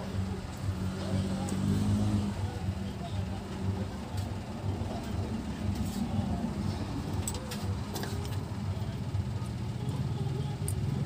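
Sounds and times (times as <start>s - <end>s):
steady low rumble: 2.2s - 11.0s.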